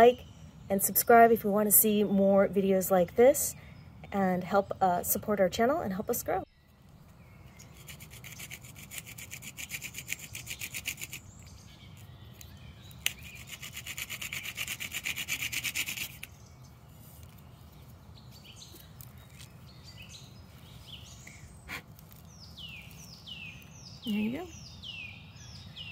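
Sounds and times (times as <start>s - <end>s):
hand drill scraping stone: 7.6s - 11.2s, 13.0s - 16.3s.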